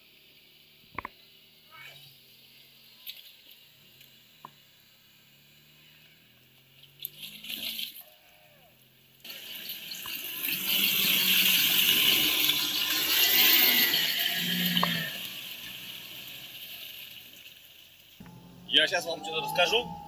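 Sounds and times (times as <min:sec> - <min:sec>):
low engine hum: 0:18.2 - 0:20.0.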